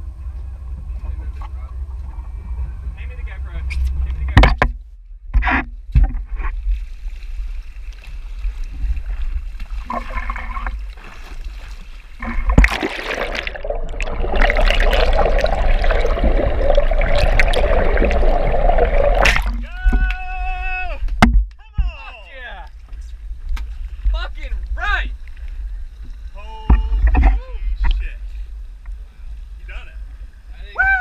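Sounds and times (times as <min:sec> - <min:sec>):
low rumble: 0:00.0 - 0:21.9
water rushing and bubbling: 0:07.2 - 0:20.0.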